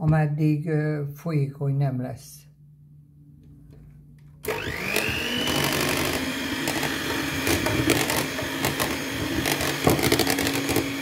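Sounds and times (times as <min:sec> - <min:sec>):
hand mixer motor whine: 0:04.4 - 0:11.0.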